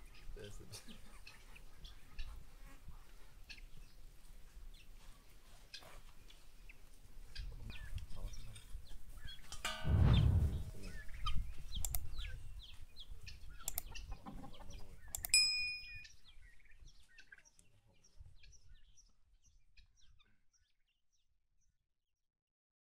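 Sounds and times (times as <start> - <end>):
small birds chirping: 0.0 - 9.6, 10.8 - 21.8
short bell-like ding: 9.7 - 10.8
hens clucking: 13.8 - 15.0.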